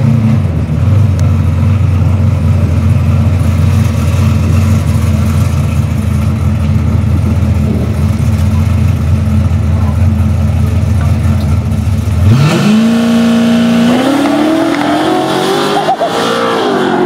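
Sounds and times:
car engine idling loudly: 0.0 - 12.4.

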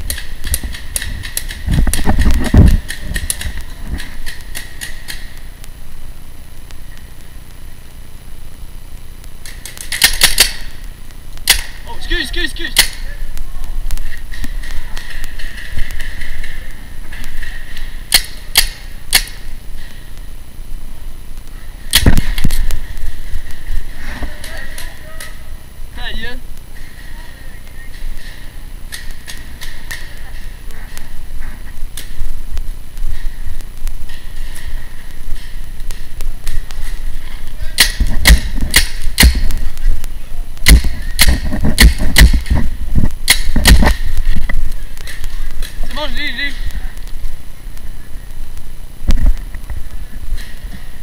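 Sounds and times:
paintball marker pops: 37.8 - 39.6, 40.6 - 42.6, 43.3 - 44.1.

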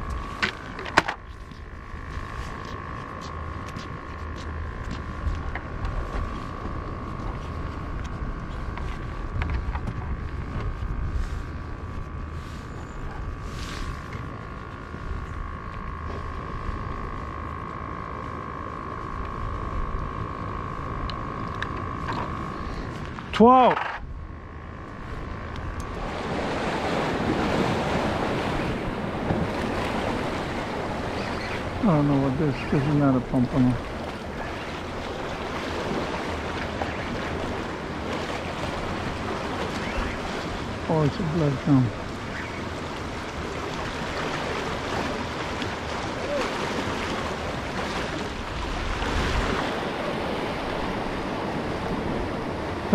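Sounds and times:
wind buffeting microphone: 0.0 - 18.0
steady high hum: 0.0 - 52.9
surf breaking on rocks: 26.0 - 52.9.

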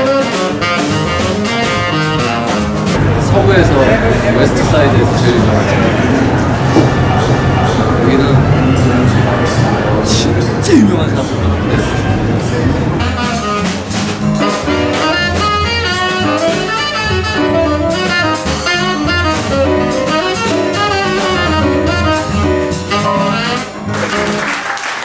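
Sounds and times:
saxophone: 0.0 - 3.4, 12.2 - 24.8
upright bass: 0.0 - 24.4
drums: 0.0 - 25.0
piano: 0.0 - 25.0
audience applause: 3.0 - 12.8, 23.6 - 25.0.

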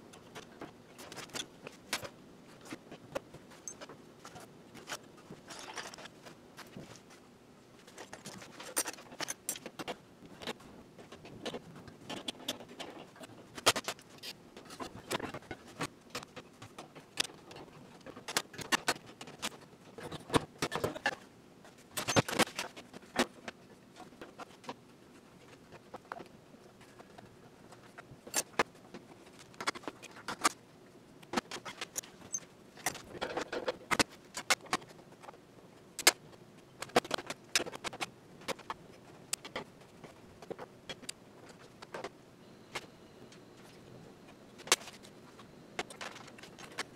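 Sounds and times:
metal parts and tools clattering: 8.0 - 9.9.

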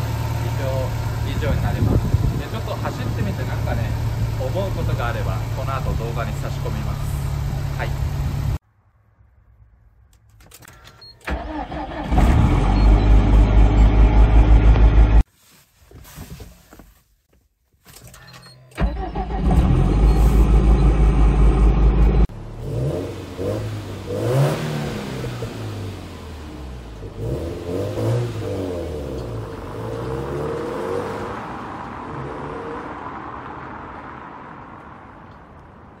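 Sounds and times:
car engine starting: 0.0 - 8.6, 10.4 - 15.3, 18.0 - 35.7
car accelerating through gears: 22.6 - 34.2.

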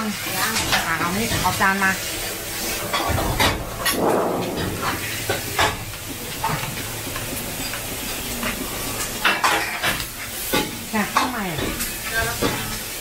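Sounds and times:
food sizzling in a wok: 0.0 - 13.0
utensil clacking against wok: 4.9 - 13.0.

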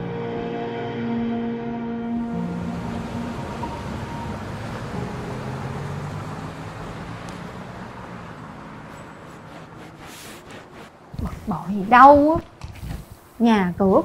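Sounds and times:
rushing road traffic noise: 2.1 - 14.0.

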